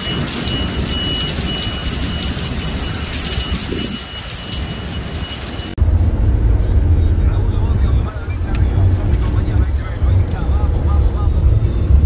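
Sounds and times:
heavy rain on pavement: 0:00.0 - 0:05.8
low rumble: 0:05.7 - 0:12.0.

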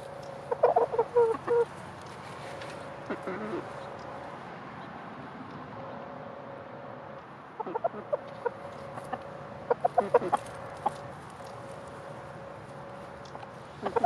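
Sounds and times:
chickens clucking: 0:00.0 - 0:04.2, 0:07.6 - 0:14.0.

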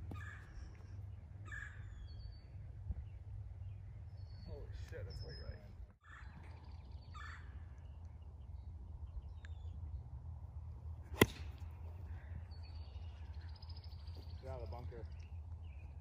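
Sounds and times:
low outdoor rumble: 0:00.0 - 0:16.0
golf club striking ball: 0:11.1 - 0:11.7.

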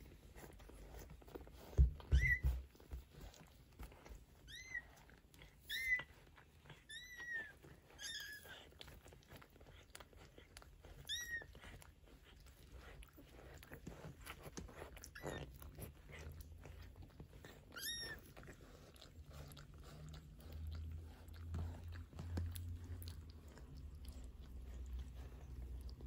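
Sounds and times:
kitten squeaking: 0:02.0 - 0:02.9, 0:04.4 - 0:08.9, 0:10.8 - 0:11.9, 0:13.1 - 0:20.0.

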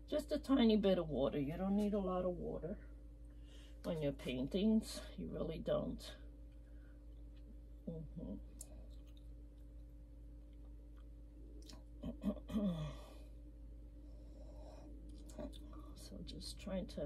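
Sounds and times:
low room hum: 0:00.0 - 0:17.0
soft mouth sounds: 0:10.6 - 0:12.9
person sighing: 0:12.0 - 0:13.3.

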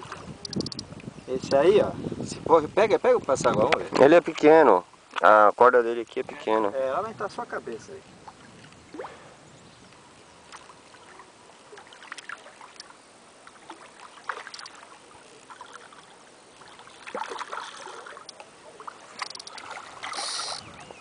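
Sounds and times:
fish splashing in water: 0:10.5 - 0:20.8.

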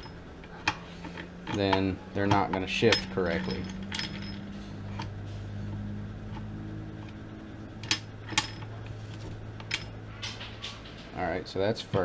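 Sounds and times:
metal gears clicking: 0:00.0 - 0:05.2
low hum: 0:00.0 - 0:12.0.

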